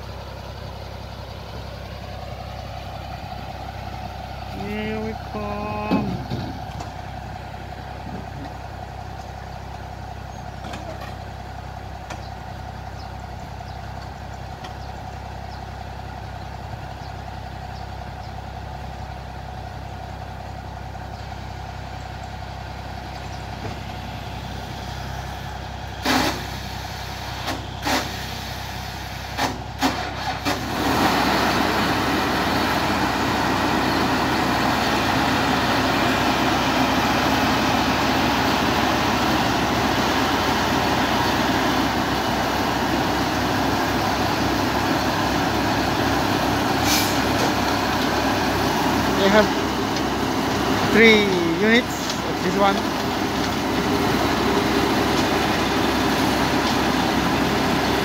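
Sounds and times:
heavy vehicle engine idling: 0.0 - 58.0
short sharp bursts of noise: 26.0 - 28.7.

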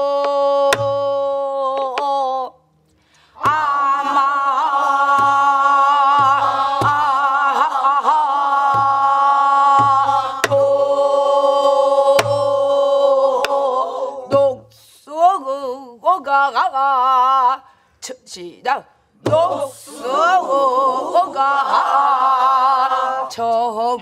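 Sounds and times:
group singing in unison: 0.0 - 2.5, 3.3 - 14.9, 19.2 - 24.0
single voice singing: 0.0 - 2.6, 3.4 - 17.7, 18.7 - 24.0.

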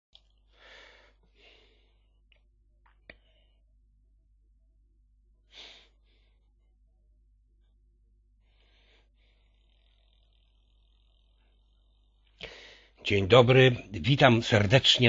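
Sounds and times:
faint steady hum: 0.2 - 15.0
soft breathy puffs: 0.5 - 2.2, 5.5 - 6.6, 8.4 - 13.0.

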